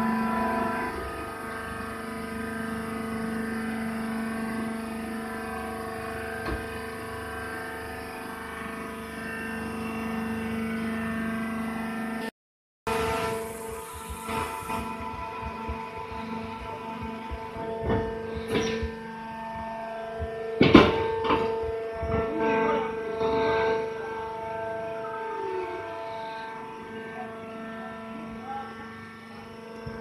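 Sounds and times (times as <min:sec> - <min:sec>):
hydraulic motor and pump humming: 0:00.0 - 0:12.3, 0:12.9 - 0:30.0.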